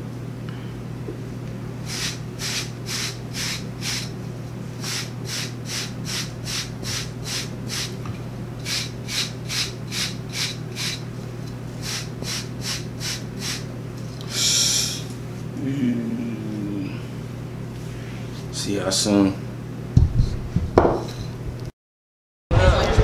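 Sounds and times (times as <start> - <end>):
hairbrush brushing short hair: 1.9 - 4.1, 4.8 - 8.0, 8.6 - 11.0.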